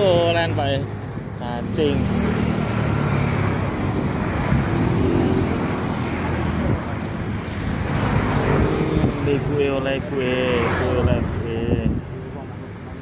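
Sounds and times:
road traffic noise: 0.0s - 13.0s.

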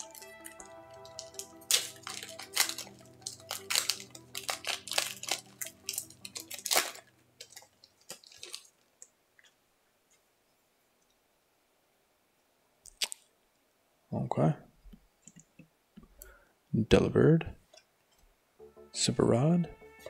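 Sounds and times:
foil wrapper crinkling: 0.0s - 9.5s.

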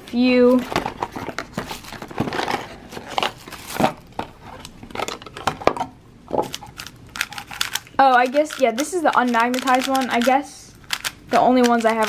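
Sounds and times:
cardboard and plastic wrap rustling: 0.0s - 5.7s.

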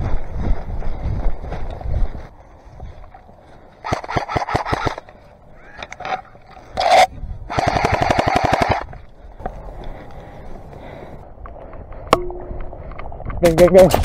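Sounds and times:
airsoft gun firing on full auto: 7.5s - 8.9s.

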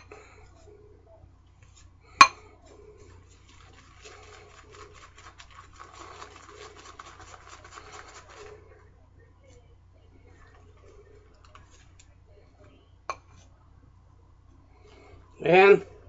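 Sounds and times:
shaving brush swishing lather: 3.2s - 8.6s.

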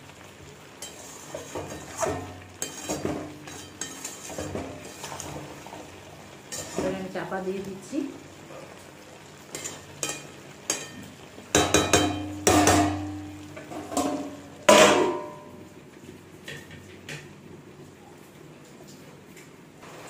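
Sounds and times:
metal spatula scraping pan: 0.8s - 5.6s, 6.5s - 7.0s, 11.8s - 15.2s
metal lid clanging on pan: 11.6s - 15.6s.

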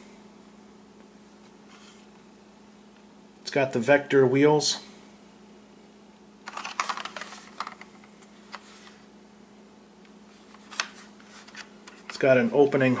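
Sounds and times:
plastic toy car clicking and rattling: 6.5s - 7.9s.

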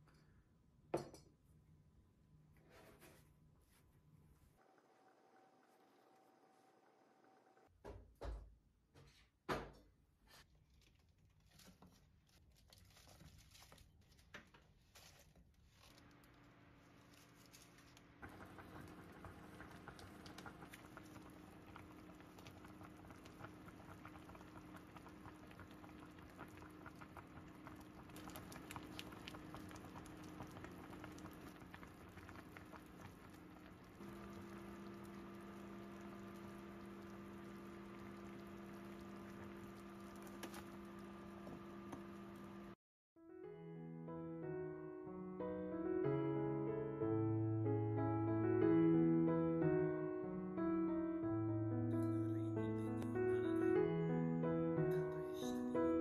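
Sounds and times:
pot simmering and bubbling: 4.6s - 7.7s, 15.8s - 42.8s
low hum: 16.0s - 42.8s.

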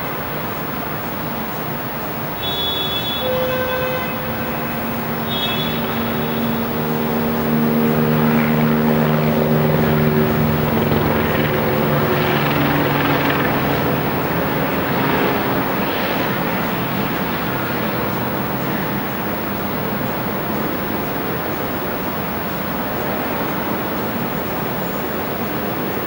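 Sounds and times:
low steady hum: 0.0s - 11.5s
fire engine rumble: 0.0s - 26.0s
brief high tones: 2.4s - 7.4s.

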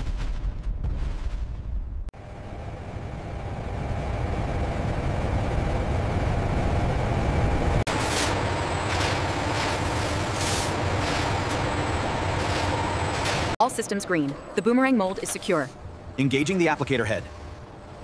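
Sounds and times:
machine hum: 2.2s - 15.0s.

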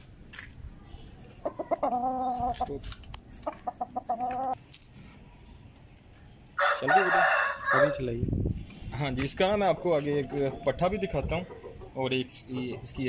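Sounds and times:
chicken clucking and calling: 1.3s - 4.6s, 10.2s - 13.0s.

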